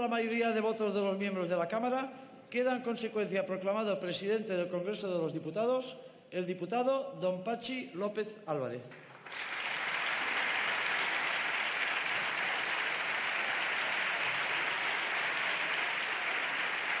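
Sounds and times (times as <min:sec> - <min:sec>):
crowd applauding in large hall: 0:08.9 - 0:17.0.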